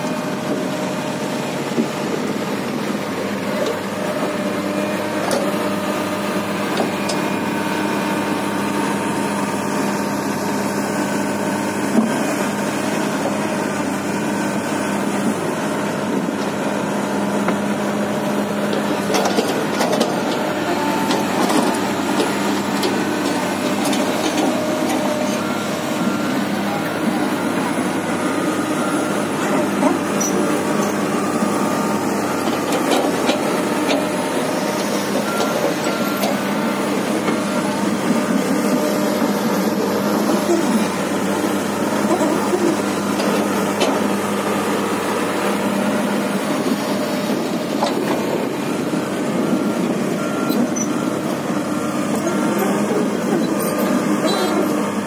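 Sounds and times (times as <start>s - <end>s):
excavator diesel engine running: 0.0s - 55.0s
knocks and clanks from tracks: 0.1s - 5.8s, 18.7s - 28.2s, 31.9s - 55.0s.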